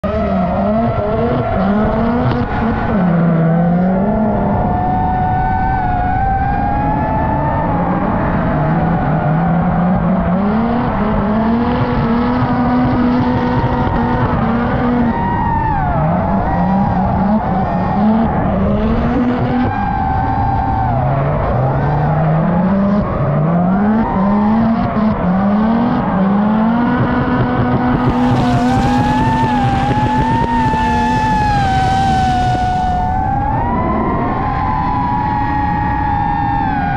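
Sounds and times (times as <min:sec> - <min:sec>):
car engine revving hard: 0:00.0 - 0:36.0.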